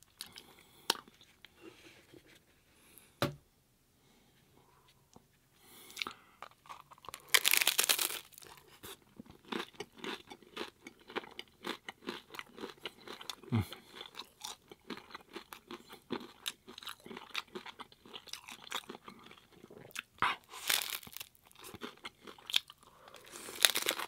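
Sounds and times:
crunchy chewing of taco shell: 5.9 - 24.0.

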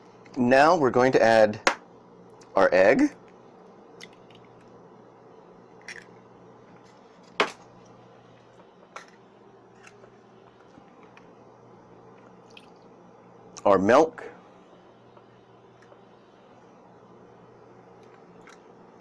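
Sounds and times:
faint steady hum: 0.0 - 19.0
egg cracking: 5.8 - 6.3.

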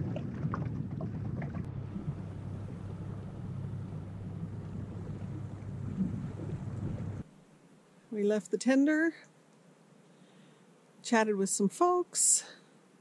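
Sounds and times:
outboard motor running: 0.0 - 7.2
wind and water hiss: 0.0 - 13.0.

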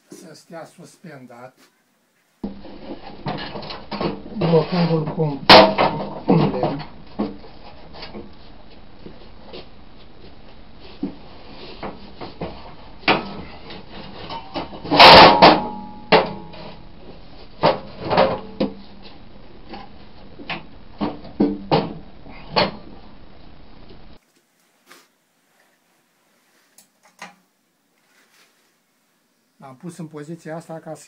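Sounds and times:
metal and wood clattering: 2.5 - 8.3, 11.9 - 16.9.

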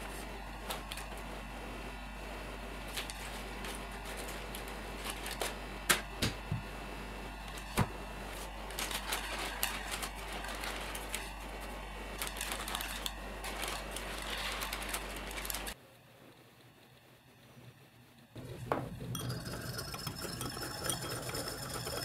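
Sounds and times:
baking paper crinkling: 2.9 - 5.6, 8.3 - 15.8.

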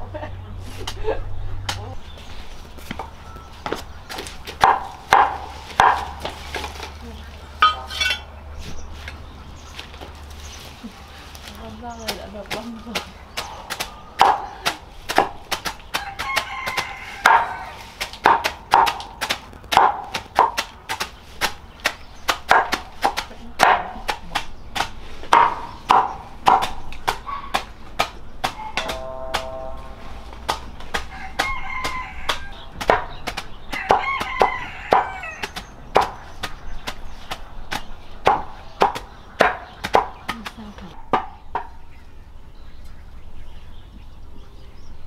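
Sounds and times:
cleaver chopping greens on wood: 2.8 - 7.0, 12.0 - 29.5, 30.3 - 41.7
rooster crowing: 16.0 - 17.9, 31.0 - 32.6, 33.8 - 35.4.

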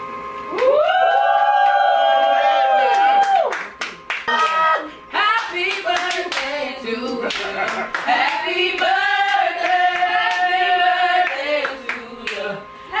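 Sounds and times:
hand claps: 2.8 - 4.6, 5.4 - 6.5, 7.3 - 10.5, 11.2 - 12.4
group singing loudly: 5.2 - 12.6.

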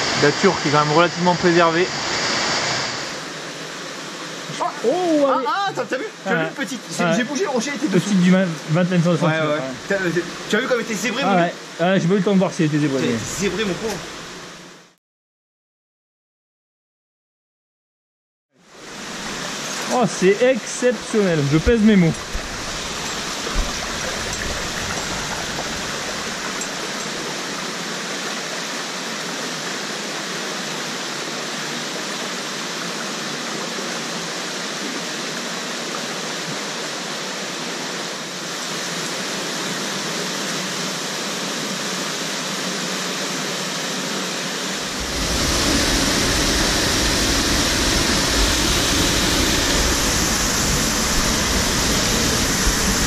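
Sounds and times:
rushing mountain stream: 0.0 - 15.0, 18.6 - 53.0
low water rumble: 21.0 - 27.5, 44.8 - 53.0.

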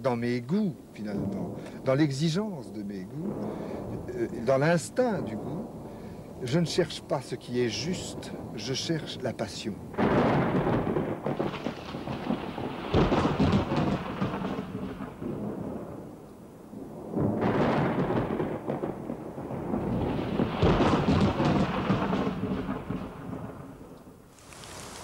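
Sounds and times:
rain hiss: 0.0 - 17.4, 24.2 - 25.0
rolling thunder: 1.0 - 25.0.

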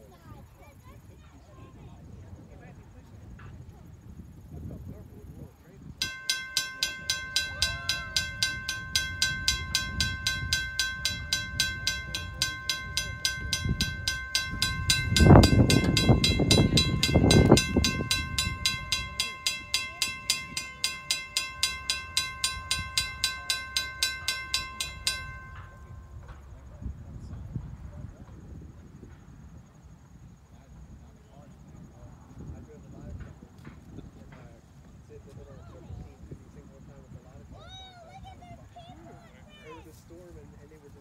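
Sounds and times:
railroad crossing bell ringing: 6.0 - 26.7.

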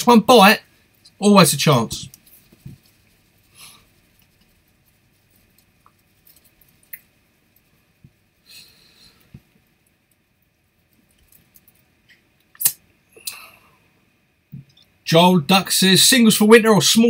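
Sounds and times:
soft hissy rustles: 0.1 - 12.2.

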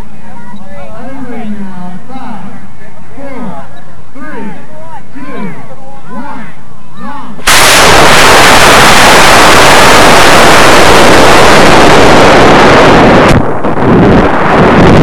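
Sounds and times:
rocket motor and wind rush: 7.5 - 15.0.

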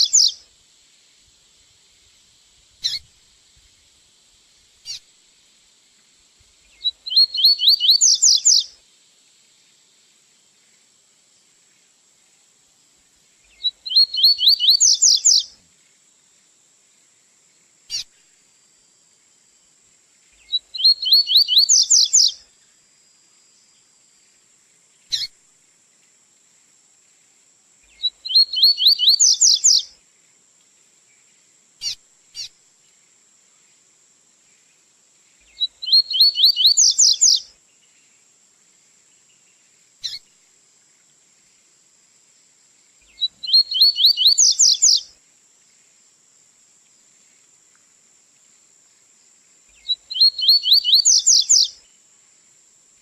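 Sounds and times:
bird song high repeated notes: 7.1 - 8.6, 13.9 - 15.4, 20.8 - 22.3, 28.3 - 29.8, 35.8 - 37.4, 43.4 - 45.0.

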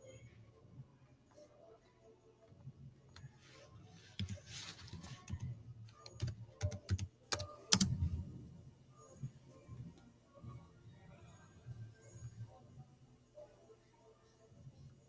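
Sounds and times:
laptop keyboard typing: 4.1 - 8.0.

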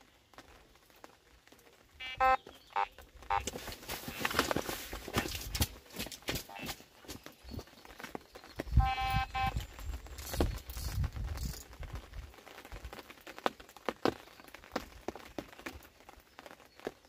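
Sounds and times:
electronic alarm beep: 8.8 - 9.6.

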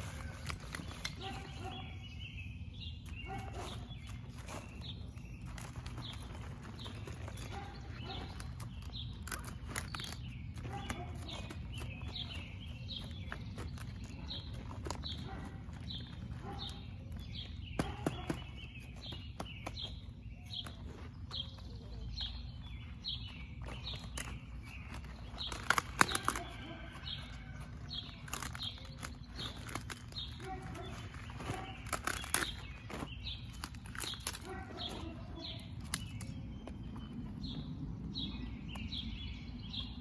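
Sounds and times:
cabbage leaves crackling: 0.0 - 1.8, 3.2 - 17.4, 23.6 - 36.4
bird chirping: 0.0 - 40.0.

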